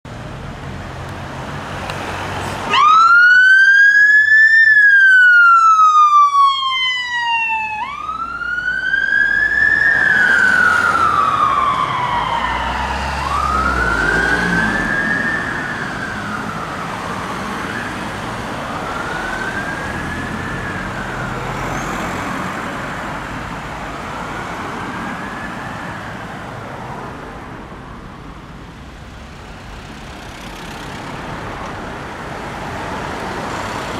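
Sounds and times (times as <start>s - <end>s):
traffic noise: 0.0s - 33.9s
police siren wailing: 2.7s - 22.7s, 24.0s - 26.5s.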